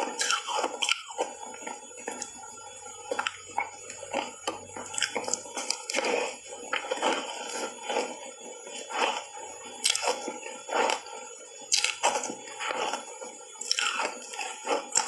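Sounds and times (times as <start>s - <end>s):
ice bar crunching when bitten: 0.2s - 1.1s, 11.7s - 12.0s, 13.6s - 15.0s.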